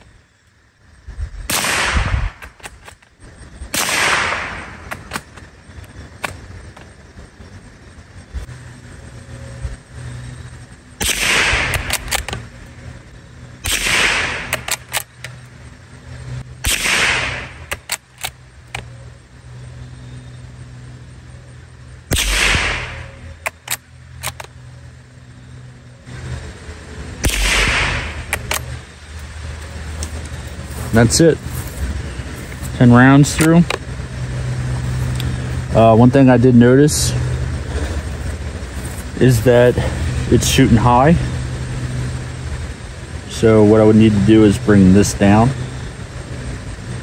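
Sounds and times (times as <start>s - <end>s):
rifle shots: 1.5s - 2.9s, 3.7s - 5.3s, 11.0s - 12.4s, 13.6s - 15.1s, 16.6s - 18.3s, 22.1s - 24.5s, 27.2s - 28.8s
rifle bolt clicks: 11.7s - 12.4s, 23.4s - 24.5s.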